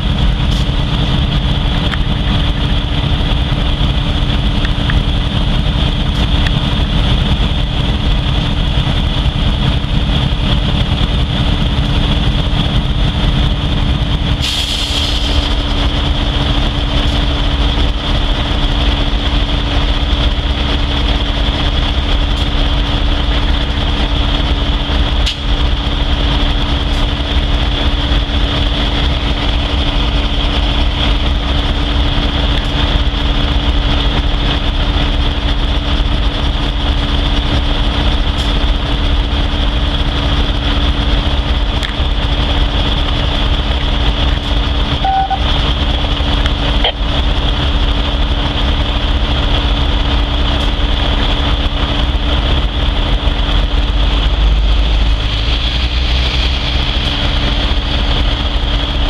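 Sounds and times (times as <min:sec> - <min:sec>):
locomotive idling: 0:00.0 - 0:59.0
burst of hiss: 0:14.4 - 0:15.4.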